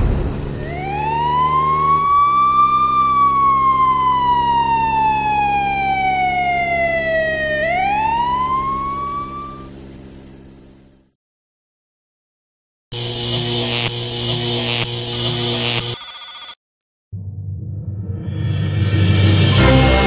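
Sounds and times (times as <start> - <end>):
siren wailing: 0.6 - 9.9.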